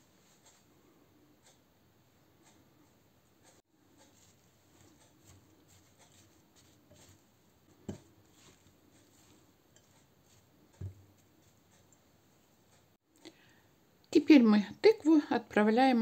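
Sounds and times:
spatula scraping a bowl: 3.7s - 12.0s.

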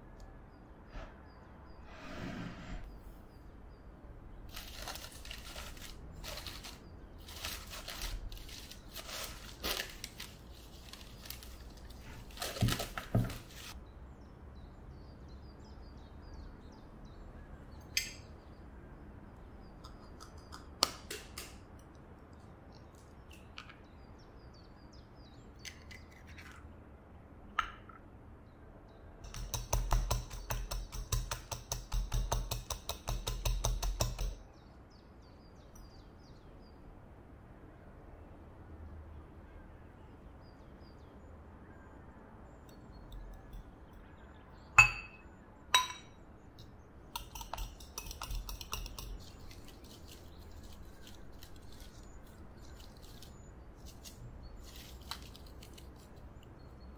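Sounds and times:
egg cracking taps: 19.8s - 22.1s, 29.3s - 34.4s, 47.1s - 53.3s
fork clinking in glass bowl: 47.2s - 49.3s.

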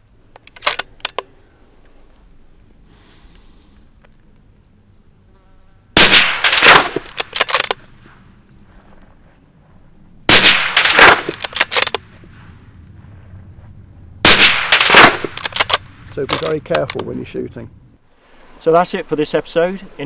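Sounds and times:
rifle shots: 6.0s - 8.1s, 10.3s - 12.5s, 14.2s - 16.5s
ricochet echoes rattling: 6.0s - 8.6s, 10.2s - 17.3s.

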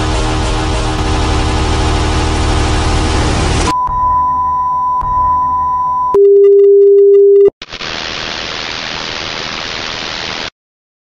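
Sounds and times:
lower pure tone: 0.0s - 6.6s
high pure tone: 0.9s - 7.5s.

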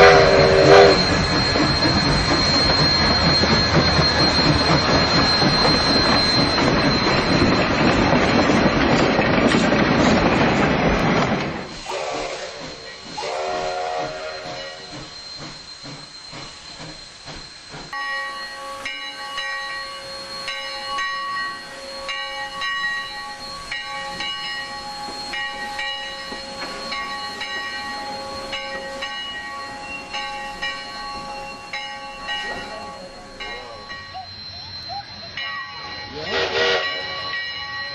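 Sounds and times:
locomotive whistle: 0.0s - 7.6s, 11.7s - 17.4s, 18.0s - 37.9s
multi-tone bell ringing: 0.0s - 8.7s, 17.9s - 37.9s
steam hissing: 0.0s - 37.4s
steam locomotive exhaust chuffing: 0.0s - 37.9s.

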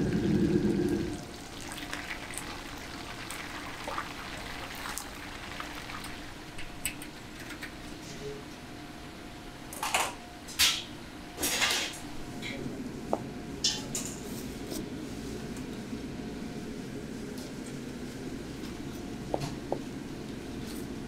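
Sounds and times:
food deep-frying in oil: 0.9s - 7.0s.

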